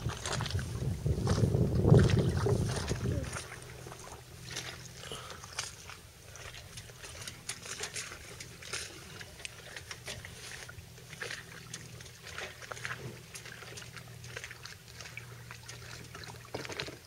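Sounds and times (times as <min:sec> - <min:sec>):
little splashes: 0:00.0 - 0:17.0
waves lapping against hull: 0:00.0 - 0:17.0.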